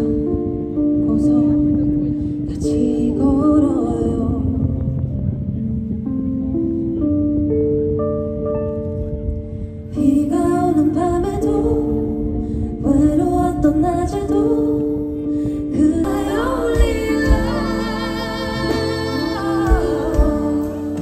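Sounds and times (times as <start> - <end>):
woman singing: 0.0 - 4.8, 10.0 - 21.0
sustained keyboard chords: 0.0 - 21.0.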